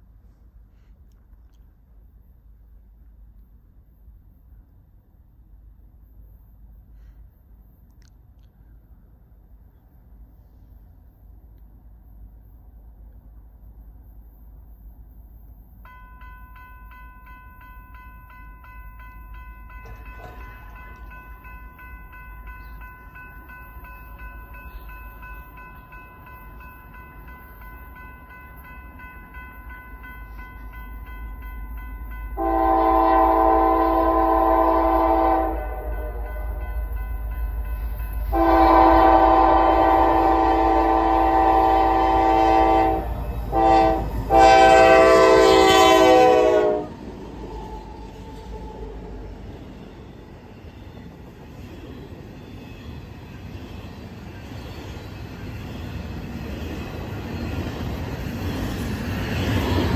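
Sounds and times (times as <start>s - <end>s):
train rumble: 0.0s - 59.9s
high ringing tone: 15.8s - 46.6s
locomotive horn blasts: 32.4s - 36.4s, 38.3s - 47.0s.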